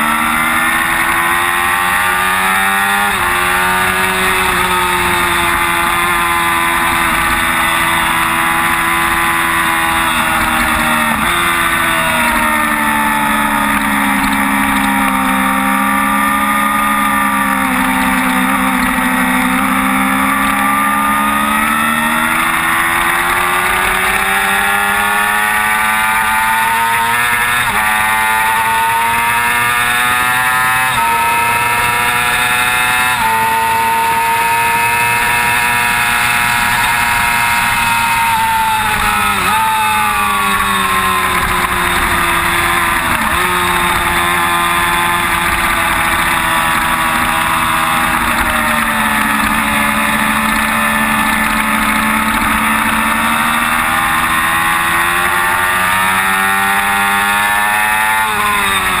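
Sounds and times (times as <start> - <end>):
motorcycle engine at high revs: 0.0 - 59.0.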